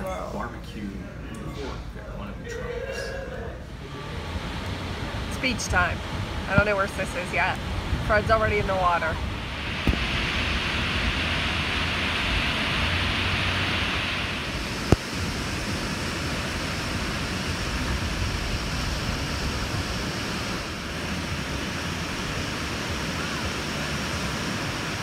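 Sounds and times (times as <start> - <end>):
waves breaking on beach: 5.2 - 25.0.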